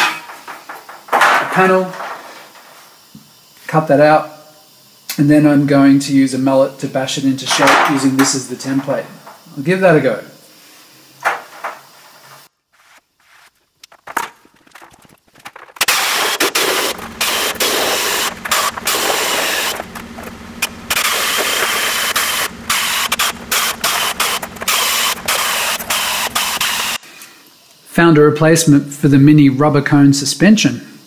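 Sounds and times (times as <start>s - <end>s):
pneumatic air shears cutting steel: 15.8s - 27.0s.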